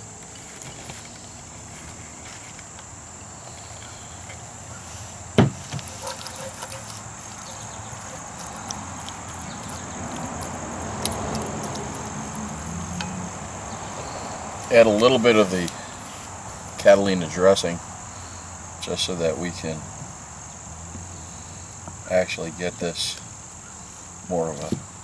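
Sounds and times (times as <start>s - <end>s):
spatula scraping in pot: 5.9s - 8.8s.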